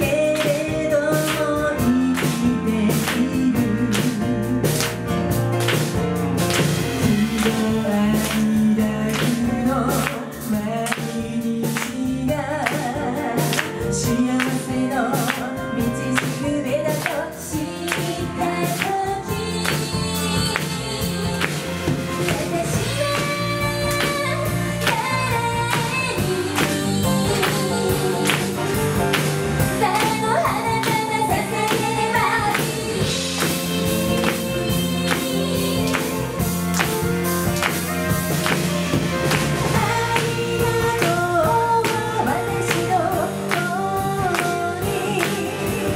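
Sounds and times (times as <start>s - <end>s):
women singing: 0.0s - 5.0s, 7.0s - 36.9s, 38.4s - 45.9s
drum kit beat: 0.0s - 45.9s
electric bass: 0.0s - 45.9s
live pop band playing: 0.0s - 45.9s.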